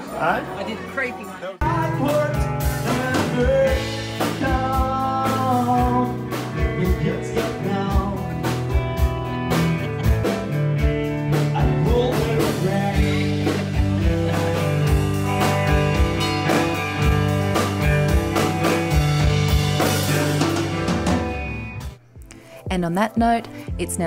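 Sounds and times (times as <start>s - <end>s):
person singing: 1.6s - 8.9s, 11.3s - 15.6s
electric guitar: 1.6s - 22.0s
steady beat: 1.6s - 24.0s.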